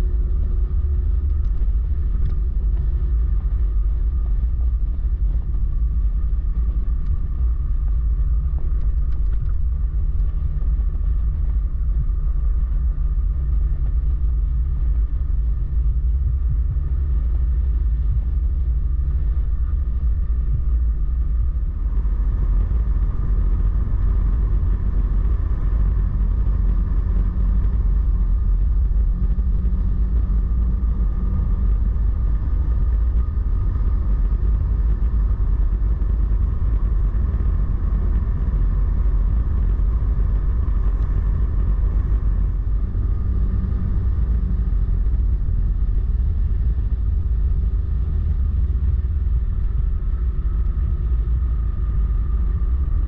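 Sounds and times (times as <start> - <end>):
wind rumble on microphone: 0.0 - 53.0.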